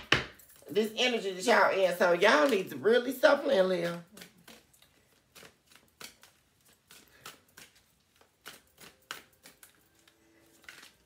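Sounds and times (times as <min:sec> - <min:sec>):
cards clicking and flicking: 0:03.8 - 0:11.0.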